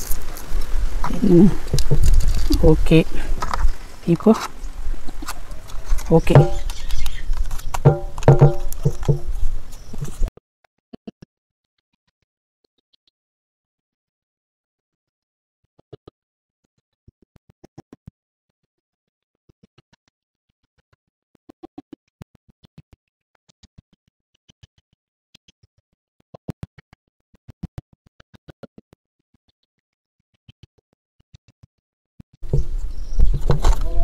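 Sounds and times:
bb pistol clicking and rattling: 1.7s - 2.6s.

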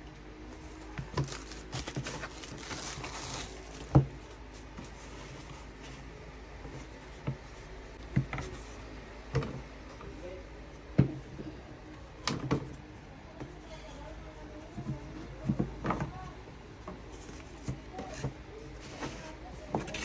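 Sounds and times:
rustling: 0.6s - 4.0s.

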